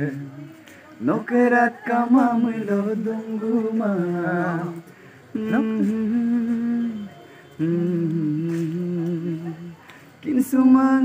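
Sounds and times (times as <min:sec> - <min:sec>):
short breaths: 0:04.9 - 0:05.3.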